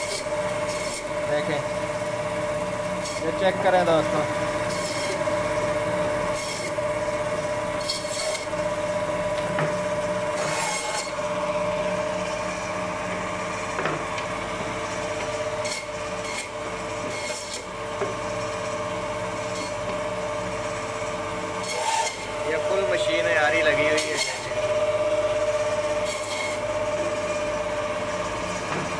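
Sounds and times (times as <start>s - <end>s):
saw blade rasping through bone: 0.0s - 1.2s, 4.6s - 5.2s, 6.3s - 6.8s, 7.8s - 8.6s, 10.3s - 11.2s, 15.6s - 17.7s, 19.5s - 19.8s, 21.6s - 22.3s, 23.8s - 24.6s, 26.0s - 26.7s
band saw humming: 0.0s - 28.9s.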